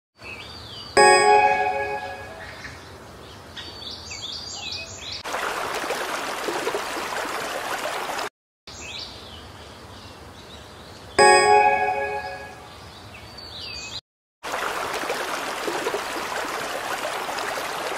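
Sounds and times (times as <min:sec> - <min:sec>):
chime ringing: 0:01.0 - 0:02.4, 0:11.2 - 0:12.7
rushing stream water: 0:05.2 - 0:08.3, 0:14.4 - 0:17.9.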